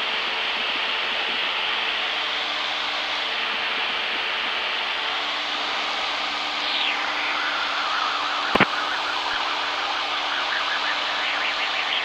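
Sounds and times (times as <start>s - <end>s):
aircraft engine and airflow hiss: 0.0s - 12.0s
low hum tones: 2.1s - 12.0s
sharp click: 8.5s - 8.7s.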